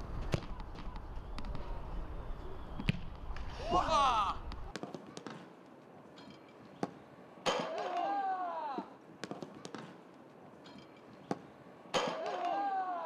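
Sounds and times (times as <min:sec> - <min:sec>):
player's drawn-out shout: 0:03.6 - 0:04.5, 0:07.6 - 0:09.0, 0:12.1 - 0:13.0.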